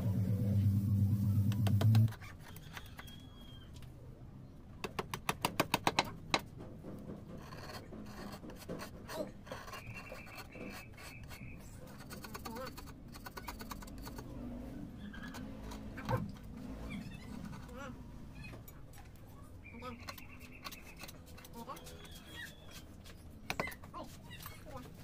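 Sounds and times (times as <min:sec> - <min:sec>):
chisel scraping stone: 0:07.3 - 0:14.4, 0:15.0 - 0:16.2, 0:17.0 - 0:17.9, 0:19.8 - 0:24.7.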